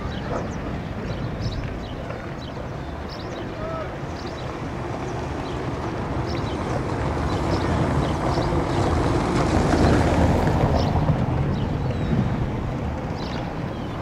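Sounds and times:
boat engine running: 0:00.0 - 0:13.8.

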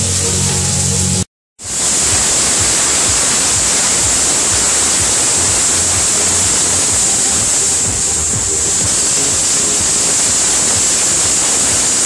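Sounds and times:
firework fountains hissing: 0:00.0 - 0:12.0.

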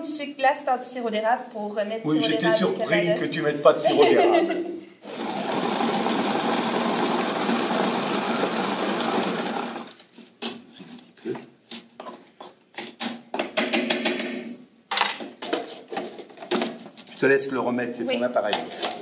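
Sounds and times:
food processor running: 0:05.0 - 0:10.0.

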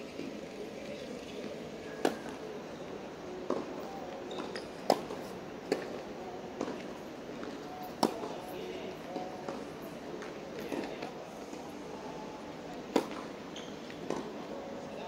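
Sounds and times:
tennis ball hit by rackets: 0:12.9 - 0:13.3, 0:14.0 - 0:14.3.

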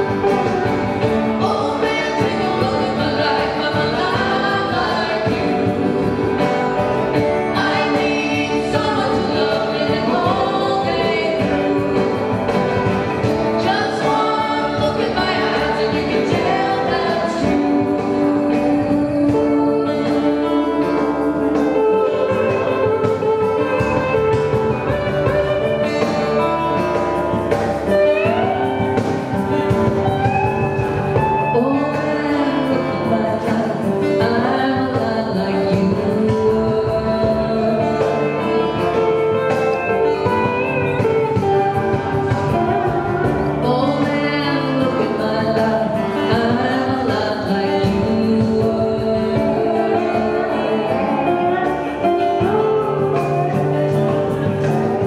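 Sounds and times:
acoustic guitars strumming: 0:00.0 - 0:55.0
woman singing: 0:00.0 - 0:55.0.

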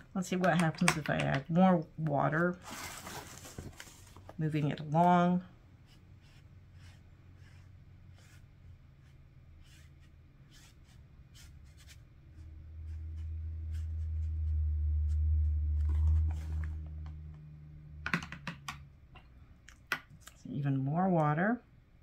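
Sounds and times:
low steady hum: 0:00.0 - 0:22.0
clicks and taps: 0:00.3 - 0:01.5, 0:18.0 - 0:20.4
brush strokes on paper: 0:05.8 - 0:17.0.

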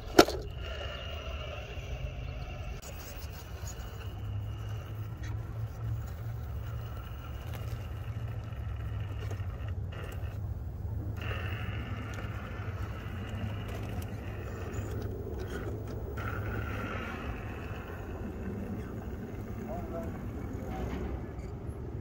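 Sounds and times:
electric motor whining: 0:00.0 - 0:21.4
low rumble: 0:00.0 - 0:22.0
tyres scraping on rock: 0:02.3 - 0:10.4, 0:11.1 - 0:21.0.

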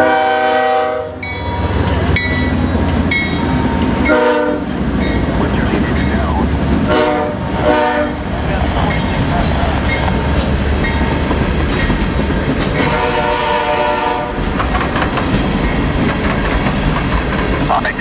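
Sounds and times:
locomotive horn blasts: 0:00.0 - 0:01.8, 0:03.6 - 0:04.7, 0:06.9 - 0:08.3, 0:12.8 - 0:14.4
freight train rumbling past: 0:00.0 - 0:18.0
wheels clattering over rail joints: 0:08.8 - 0:13.0, 0:14.4 - 0:18.0.

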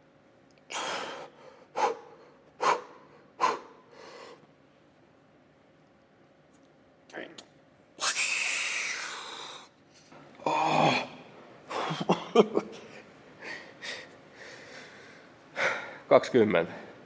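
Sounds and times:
man breathing hard and groaning: 0:10.4 - 0:11.8.

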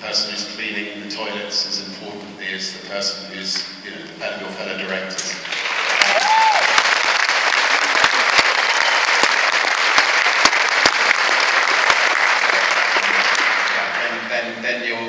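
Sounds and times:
audience applauding: 0:05.4 - 0:14.1.

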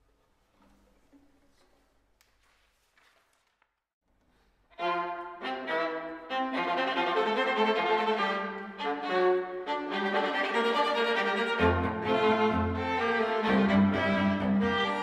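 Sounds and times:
string quartet playing: 0:04.8 - 0:15.0.

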